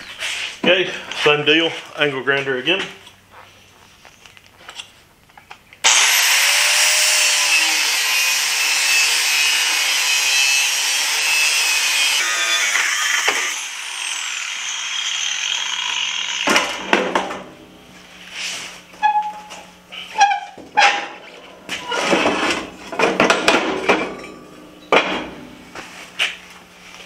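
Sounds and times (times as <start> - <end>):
angle grinder cutting steel: 5.8 - 16.9.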